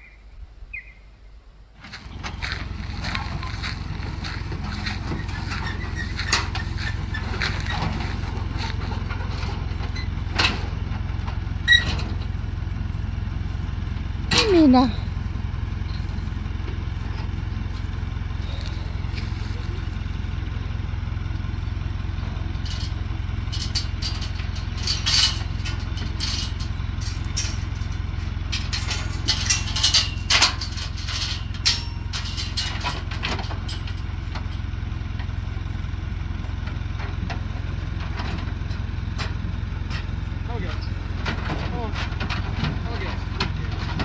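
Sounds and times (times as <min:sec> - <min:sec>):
motor vehicle droning: 0:00.8 - 0:44.0
rattling and clatter: 0:01.8 - 0:14.8, 0:22.0 - 0:35.7, 0:36.4 - 0:44.0.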